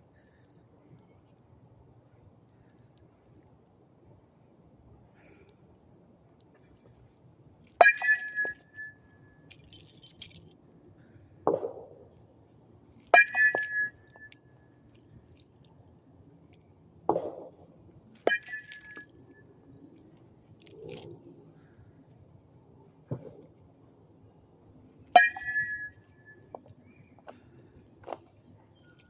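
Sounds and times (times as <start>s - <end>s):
bat hitting ball ping: 7.8s - 9.0s, 13.1s - 14.3s, 18.3s - 19.1s, 25.2s - 26.0s.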